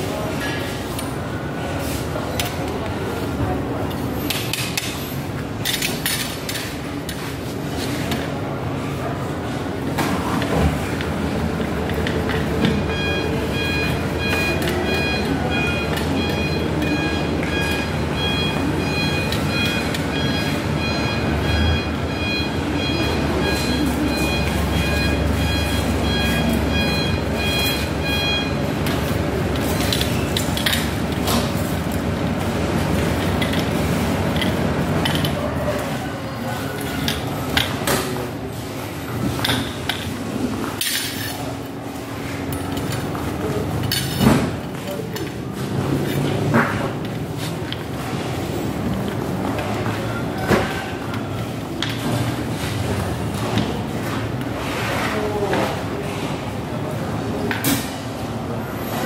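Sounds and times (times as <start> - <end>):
steady rumbling background noise: 0.0 - 59.0
metal rods clinking and clicking: 29.5 - 31.3, 33.0 - 35.4, 40.8 - 41.5.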